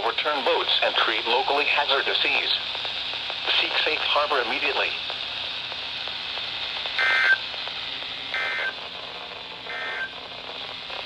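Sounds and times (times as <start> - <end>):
radio hiss: 0.0 - 11.0
digital data tone bursts: 7.0 - 7.4, 8.4 - 8.8, 9.7 - 10.2.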